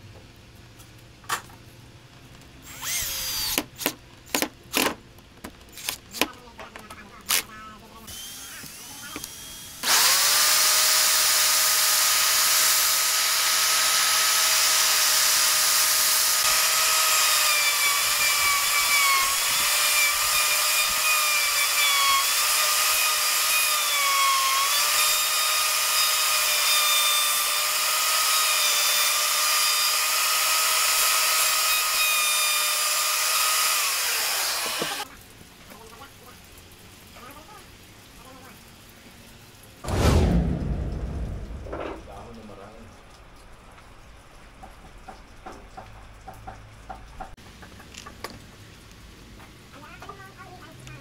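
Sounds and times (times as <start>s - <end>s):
trim router whining: 2.7s - 3.7s, 8.1s - 35.1s
router cutting wood: 2.7s - 4.0s, 8.1s - 35.1s.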